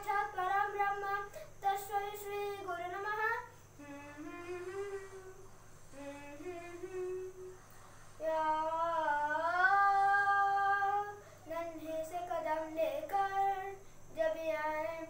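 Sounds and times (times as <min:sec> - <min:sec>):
boy humming: 0:03.0 - 0:07.6.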